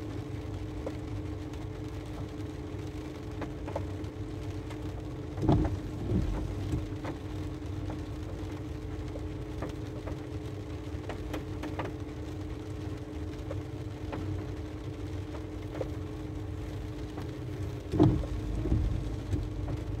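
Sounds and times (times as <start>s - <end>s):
rain pattering on a car roof: 0.0s - 20.0s
steady car hum: 0.0s - 20.0s
louder thumps: 17.9s - 20.0s.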